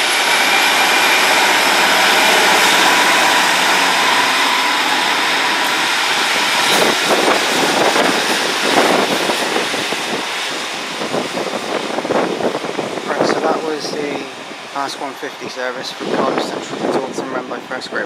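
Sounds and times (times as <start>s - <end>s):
diesel train engines and wheels: 0.0s - 18.0s
wind buffeting microphone: 0.0s - 18.0s.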